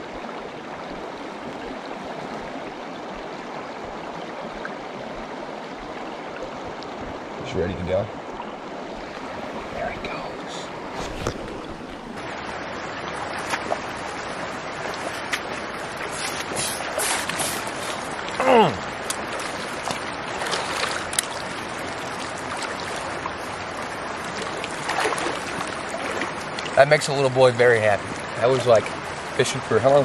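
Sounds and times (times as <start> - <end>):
water rushing over stones: 0.0 - 30.0
splashes of wading feet: 13.2 - 26.8.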